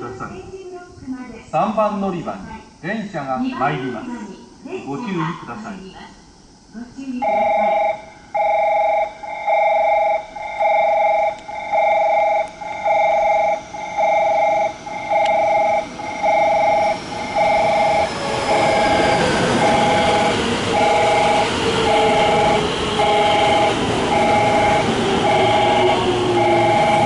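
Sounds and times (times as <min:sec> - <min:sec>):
electronic two-tone chime: 0:07.2 - 0:19.0, 0:19.6 - 0:27.0
falling brake whine: 0:07.3 - 0:27.0
train rumble: 0:10.4 - 0:27.0.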